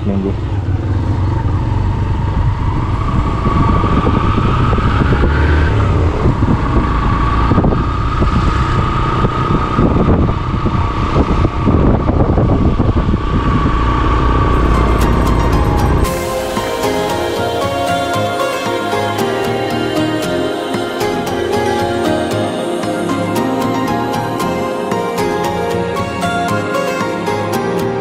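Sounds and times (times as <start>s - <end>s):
wind buffeting microphone: 0.0s - 16.3s
motorcycle engine running: 0.0s - 17.3s
steady whine: 0.0s - 28.0s.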